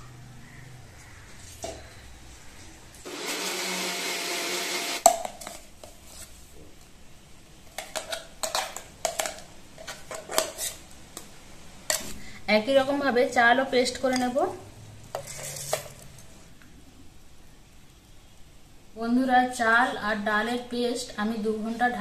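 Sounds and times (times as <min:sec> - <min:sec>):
mixer grinder grinding: 0:03.0 - 0:05.1.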